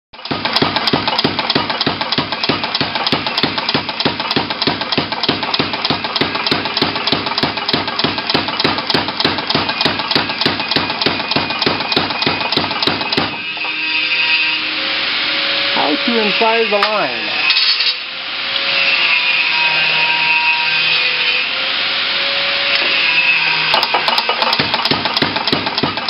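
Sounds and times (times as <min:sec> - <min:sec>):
power hammer striking steel: 0:00.2 - 0:14.6, 0:22.5 - 0:26.0.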